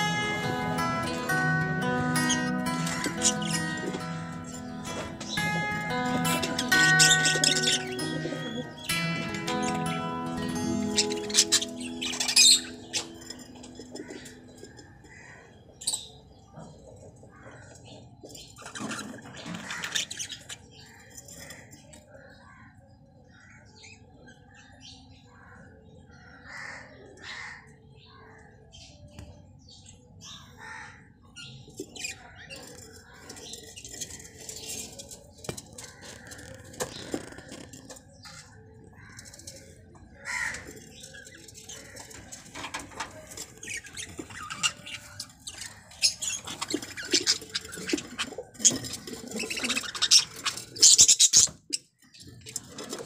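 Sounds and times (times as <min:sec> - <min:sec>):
budgerigars chirping: 0:01.1 - 0:14.4, 0:40.2 - 0:51.8.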